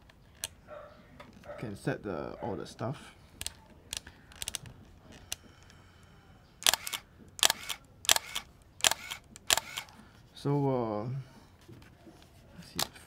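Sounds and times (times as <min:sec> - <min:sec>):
camera clicks and clacks: 0:03.4 - 0:04.7, 0:06.6 - 0:10.0.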